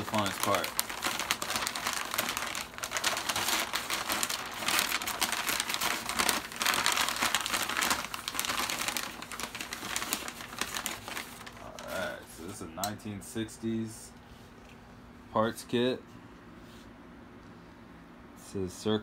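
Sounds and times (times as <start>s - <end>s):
wrapping paper crinkling: 0.0s - 12.5s.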